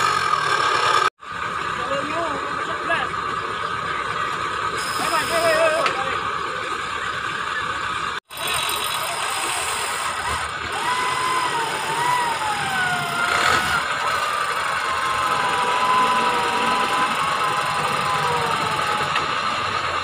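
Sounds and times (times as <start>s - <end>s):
off-road vehicle engine: 0.0s - 20.0s
wavering whining tone: 8.6s - 20.0s.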